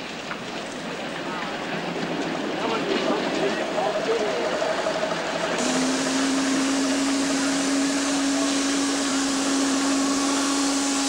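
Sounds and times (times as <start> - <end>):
steam hissing: 2.6 - 11.0
steam whistle blowing: 5.6 - 11.0.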